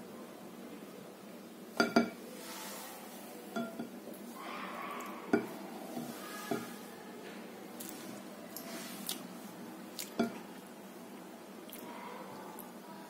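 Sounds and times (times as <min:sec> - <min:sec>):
clinks against glass bowl: 0:03.6 - 0:03.9
spatula scraping mixture in bowl: 0:05.3 - 0:06.9.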